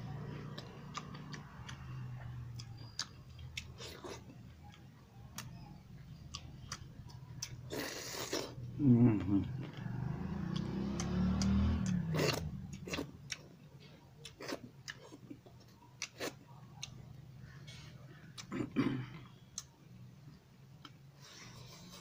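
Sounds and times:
wet chewing and lip smacks: 0.1s - 8.6s, 9.8s - 17.1s
person humming: 8.8s - 9.6s.

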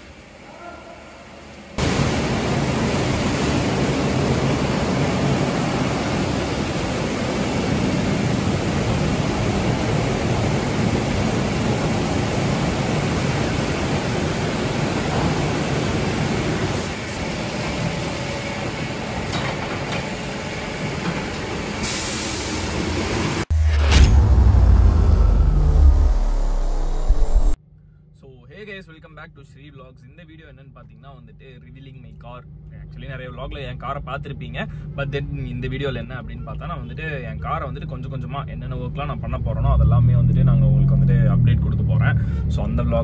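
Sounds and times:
machine hum: 0.0s - 21.8s, 22.9s - 28.0s
water rushing: 1.8s - 19.3s.

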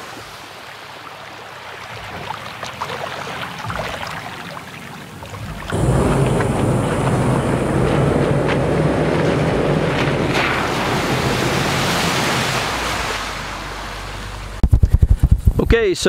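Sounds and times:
muddy water splashing: 0.0s - 14.6s
truck engine running: 5.7s - 15.4s.

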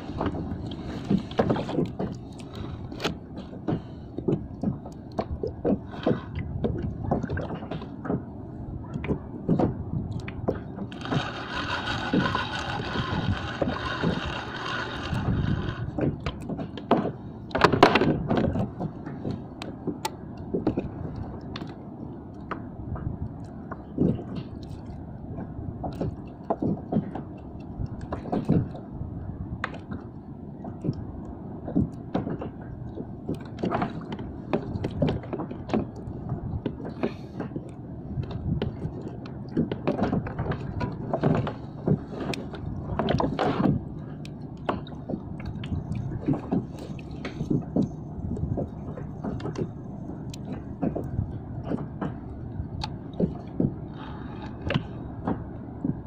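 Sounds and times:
water lapping against hull: 0.0s - 56.0s.

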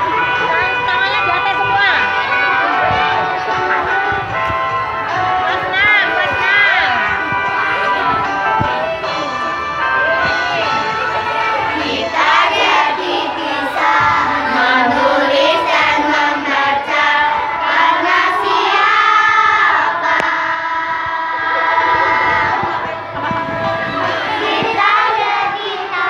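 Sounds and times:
backing music track: 0.0s - 26.0s
women and children singing: 5.2s - 26.0s.

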